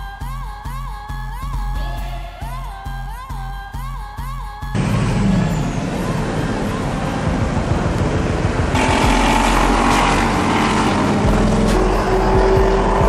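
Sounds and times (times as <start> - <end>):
vehicle engines passing: 4.8 - 13.0.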